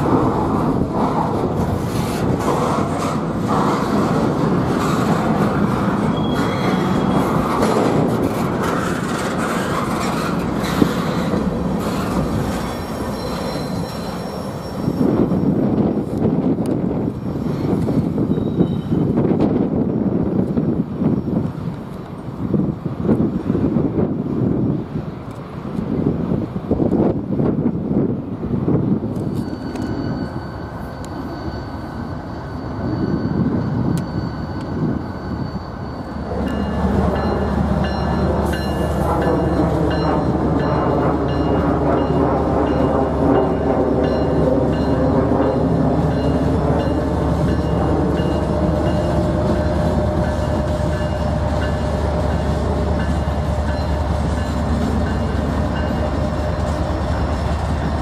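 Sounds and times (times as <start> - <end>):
train wheel rumble: 0.0 - 58.0
train wheels squealing: 5.9 - 7.8, 8.6 - 15.8, 17.1 - 19.3, 29.1 - 57.9
crossing bell ringing: 29.2 - 57.3
locomotive engine: 34.0 - 58.0.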